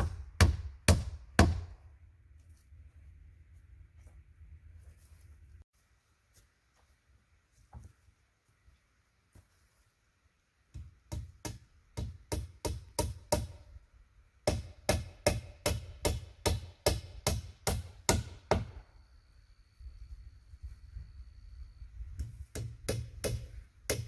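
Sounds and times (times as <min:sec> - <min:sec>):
hammer blows on log wall: 0:00.0 - 0:01.8, 0:14.4 - 0:18.9, 0:22.2 - 0:24.0.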